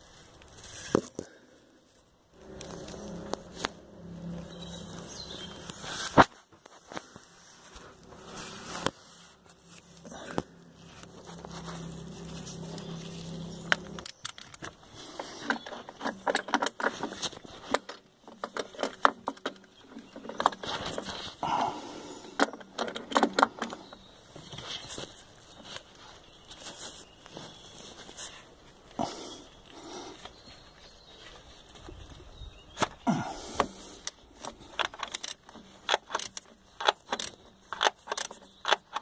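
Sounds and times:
low hum: 0:01.3 - 0:06.3, 0:07.0 - 0:15.4
metallic clinks and rattles: 0:12.4 - 0:21.1, 0:22.2 - 0:24.1.

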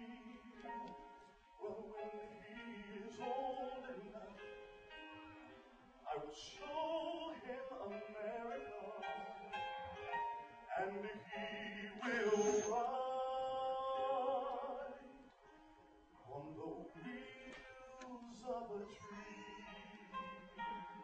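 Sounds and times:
person singing ballad: 0:00.0 - 0:04.8, 0:10.3 - 0:15.4, 0:16.2 - 0:21.0.

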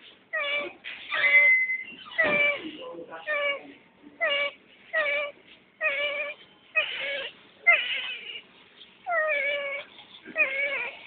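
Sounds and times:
infant crying: 0:09.1 - 0:11.0.

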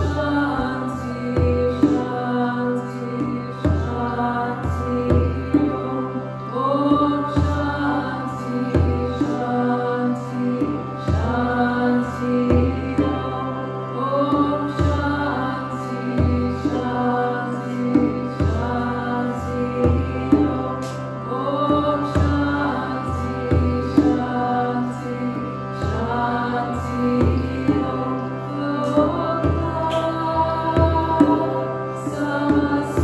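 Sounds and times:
woman singing: 0:00.0 - 0:33.0
sustained drone: 0:24.4 - 0:32.1.

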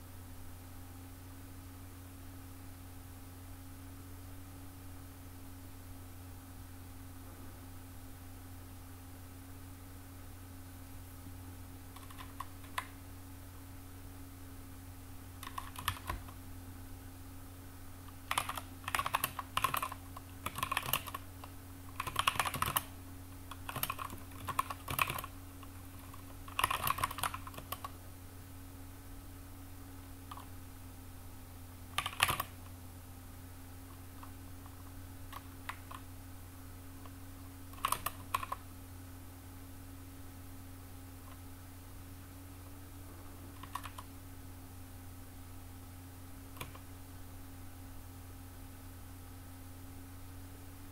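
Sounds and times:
steady low hum: 0:00.0 - 0:50.9
keyboard typing clicks: 0:11.9 - 0:13.0, 0:15.4 - 0:16.4, 0:18.1 - 0:28.0, 0:30.3 - 0:30.5, 0:32.0 - 0:32.6, 0:35.3 - 0:36.1, 0:37.0 - 0:38.6, 0:43.5 - 0:44.1, 0:46.5 - 0:46.9.

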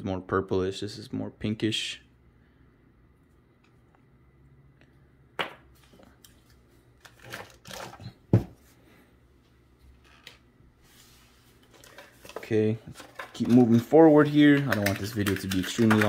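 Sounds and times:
plastic packaging clicks and rustles: 0:07.0 - 0:08.2, 0:11.6 - 0:16.0.

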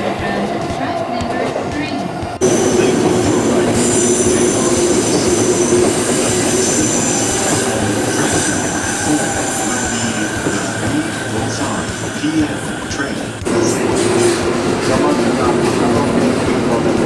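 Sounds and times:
train running gear rumble: 0:00.0 - 0:17.0
train wheels squealing: 0:02.4 - 0:13.4.

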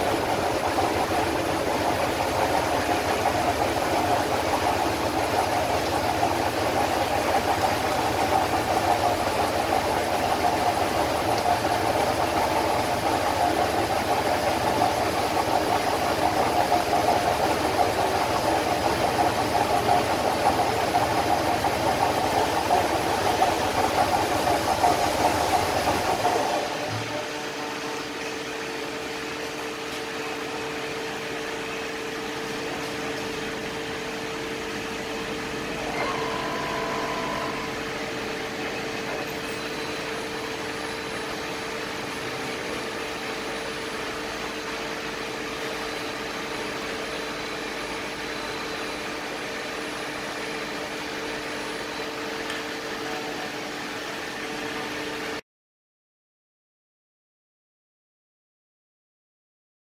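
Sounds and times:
machine mechanical hum: 0:00.0 - 0:55.4
brief higher machine tone: 0:35.7 - 0:41.2.

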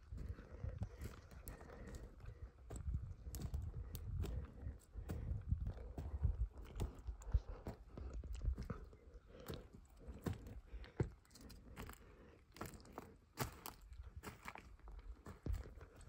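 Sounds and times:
footsteps crunching over dry twigs: 0:09.3 - 0:16.0.

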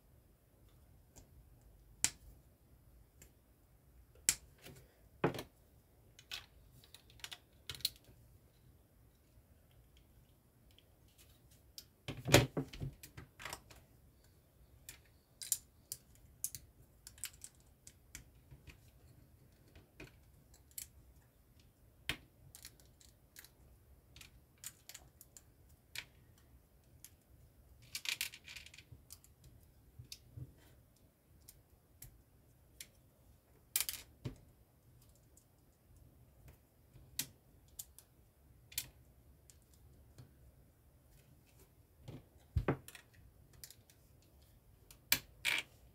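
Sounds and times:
plastic bricks clicking and snapping: 0:06.2 - 0:08.1.

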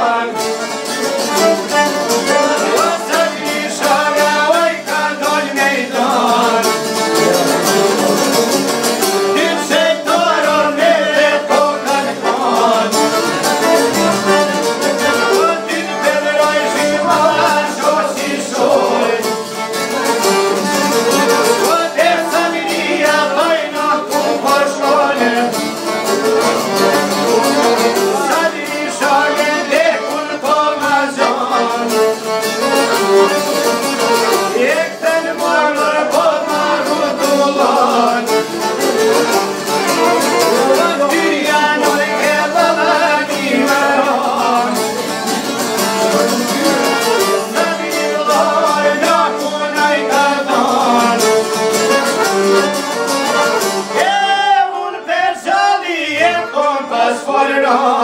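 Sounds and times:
man singing: 0:00.0 - 0:00.7, 0:02.1 - 0:13.4, 0:15.0 - 0:19.4, 0:21.4 - 0:25.8, 0:26.5 - 0:32.2, 0:34.4 - 0:38.6, 0:39.8 - 0:45.1, 0:46.4 - 0:51.6, 0:53.9 - 0:58.0
violin: 0:00.0 - 0:54.3
plucked lutes: 0:00.0 - 0:54.5
accordion: 0:00.0 - 0:58.0.

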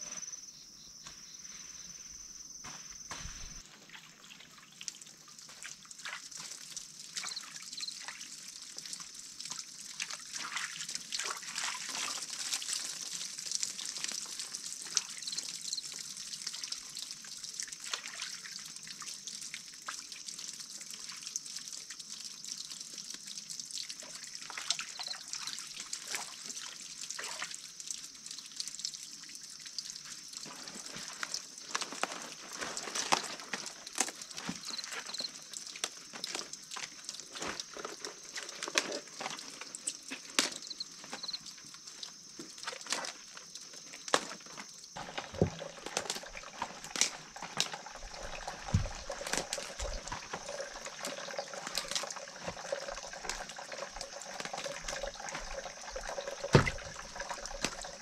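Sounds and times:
water splashes and drips: 0:01.0 - 0:58.0
hose water trickling into basin: 0:02.9 - 0:58.0
insect trilling: 0:07.2 - 0:08.1, 0:34.3 - 0:36.7, 0:37.4 - 0:58.0.

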